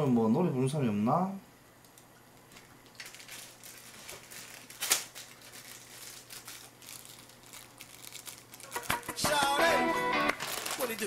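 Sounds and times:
plastic packaging crinkling: 0:02.5 - 0:11.0.

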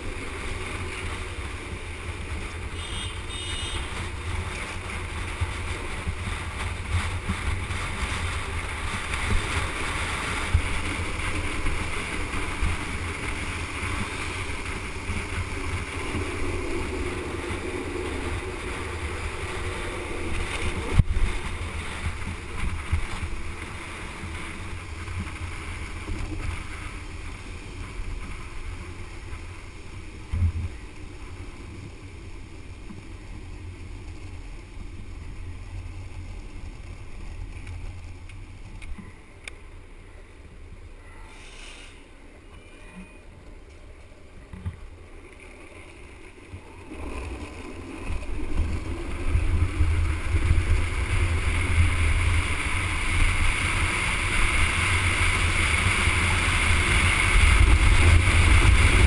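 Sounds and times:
wind rushing over microphone: 0:00.0 - 0:40.9, 0:43.4 - 0:59.0
wheels rumbling on asphalt: 0:00.0 - 0:59.0.

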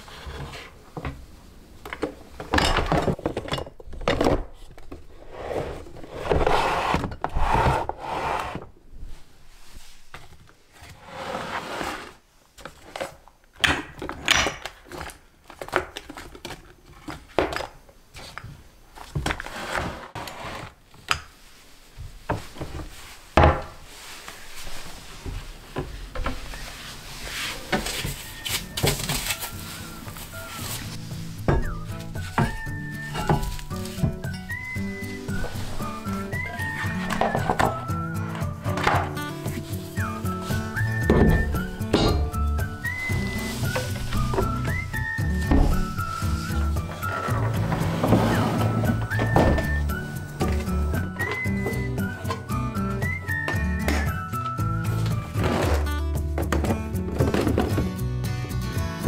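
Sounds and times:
containers knocking in cabinets: 0:31.5 - 0:34.7, 0:35.3 - 0:39.4, 0:40.6 - 0:54.2, 0:55.0 - 0:58.0.

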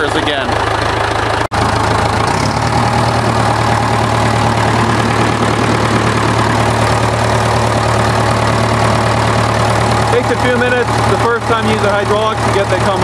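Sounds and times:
tractor diesel engine idling: 0:00.0 - 0:13.0.

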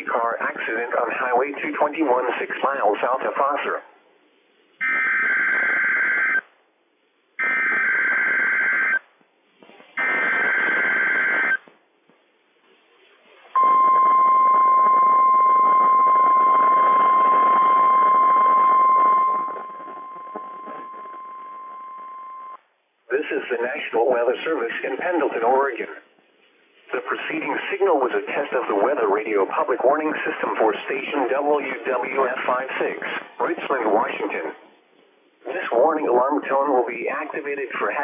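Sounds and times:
steady warning alarm tone: 0:04.8 - 0:06.4, 0:07.4 - 0:09.0, 0:10.0 - 0:11.6, 0:13.6 - 0:22.6
radio static hiss: 0:09.6 - 0:11.6, 0:15.7 - 0:21.8, 0:23.1 - 0:26.2, 0:26.8 - 0:34.7.

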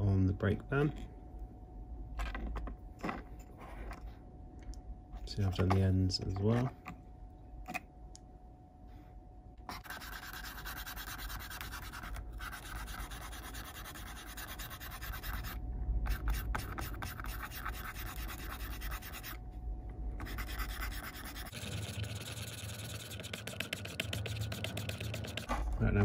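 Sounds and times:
pen scratching plastic: 0:09.7 - 0:19.4, 0:20.2 - 0:25.5.

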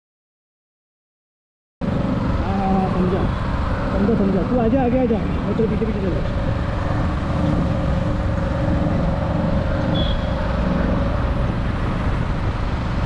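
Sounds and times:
motorcycle engine cruising: 0:01.8 - 0:13.0
road noise: 0:01.8 - 0:13.0.

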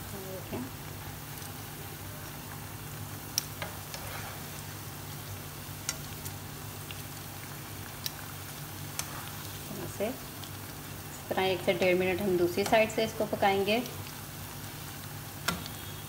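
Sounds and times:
batter sizzling in hot oil: 0:00.0 - 0:16.0
metal tongs clicking on pan: 0:05.8 - 0:06.1, 0:12.6 - 0:12.9, 0:15.4 - 0:15.7.

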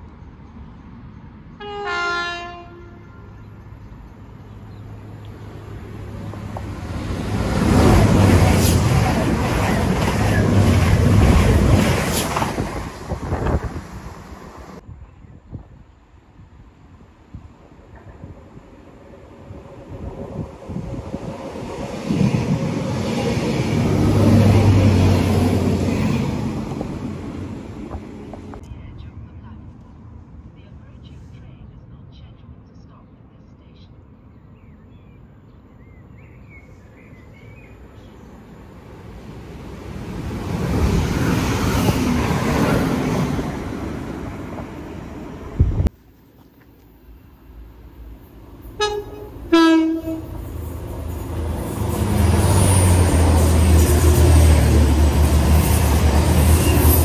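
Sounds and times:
two-tone train horn: 0:01.6 - 0:03.5, 0:48.8 - 0:50.4
wheels rumbling on rails: 0:03.0 - 0:15.9, 0:35.8 - 0:57.0
diesel train engine drone: 0:15.7 - 0:34.8, 0:36.8 - 0:57.0.

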